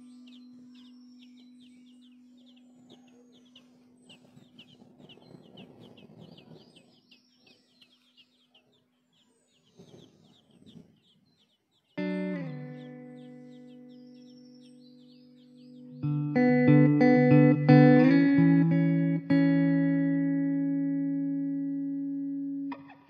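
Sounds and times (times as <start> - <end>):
nestlings chirping: 0.0 - 16.8.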